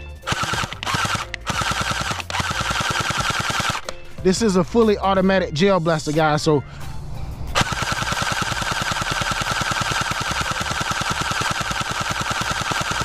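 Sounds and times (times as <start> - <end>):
gel blaster rapid shots: 0.3 - 3.8, 7.6 - 13.0
motor and gearbox whining: 0.3 - 3.8, 7.6 - 13.0.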